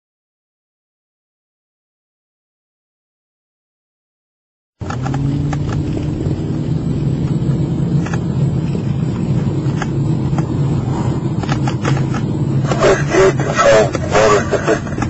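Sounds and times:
scattered clicks: 4.8s - 6.1s, 8.0s - 8.3s, 9.1s - 10.5s, 11.4s - 12.8s
car engine and road drone: 4.8s - 15.0s.

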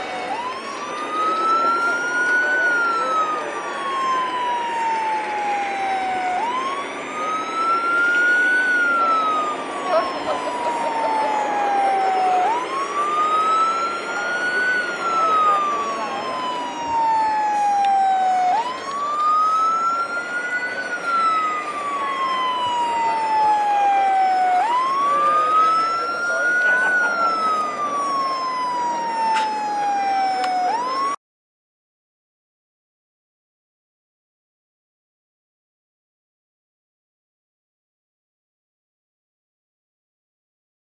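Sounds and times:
steady background noise: 0.0s - 31.1s
wailing siren: 0.0s - 31.2s.

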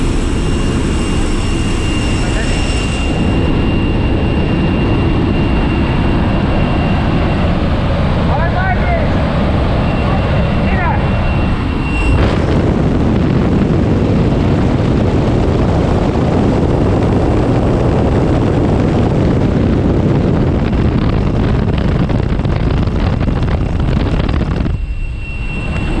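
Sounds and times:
airplane engine noise: 0.0s - 26.0s
wind rushing past open door: 0.0s - 26.0s.

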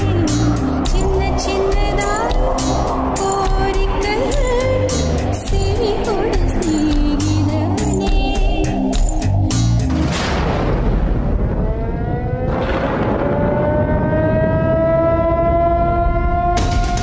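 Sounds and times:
beat-driven music with sharp hits: 0.0s - 10.6s, 16.6s - 17.0s
low rumble: 0.0s - 15.2s
rising siren-like tone: 11.4s - 17.0s.

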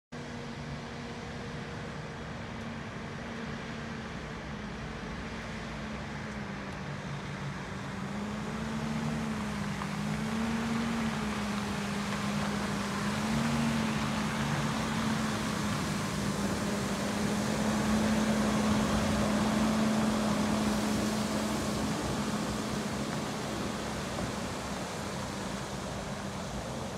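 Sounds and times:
diesel truck engine running: 7.7s - 26.9s
water spraying onto dirt: 8.2s - 26.9s.

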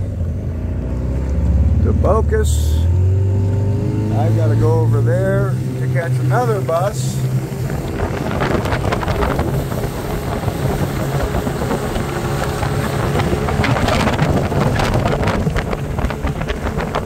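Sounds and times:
boat motor running: 0.0s - 17.0s
wind on microphone: 3.5s - 17.0s.

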